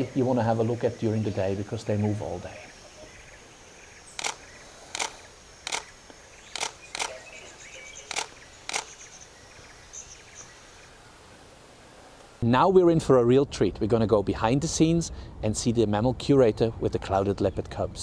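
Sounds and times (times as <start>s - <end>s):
camera shutter clicks: 4.1s - 5.9s, 6.5s - 7.3s, 8.0s - 9.0s.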